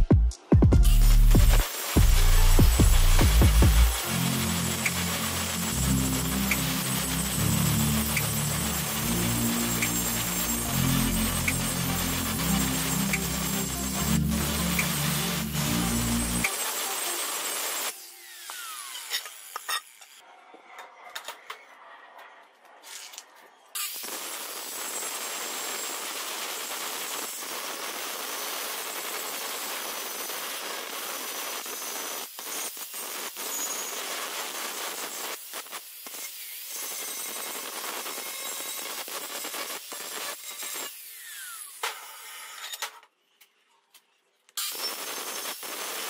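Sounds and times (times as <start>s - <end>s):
angle grinder grinding steel: 0.8s - 20.2s, 23.8s - 43.4s.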